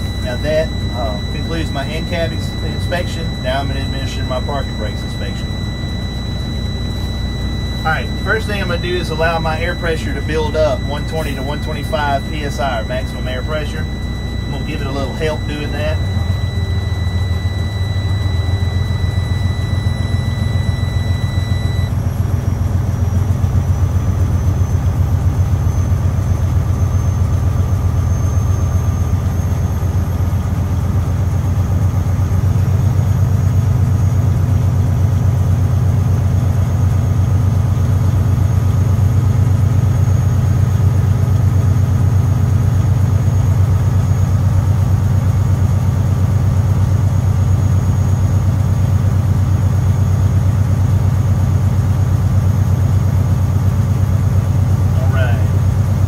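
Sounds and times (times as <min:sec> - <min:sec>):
steady high tone: 0:00.0 - 0:22.2, 0:54.5 - 0:56.0
high whine climbing in pitch: 0:00.0 - 0:32.7, 0:53.9 - 0:56.0.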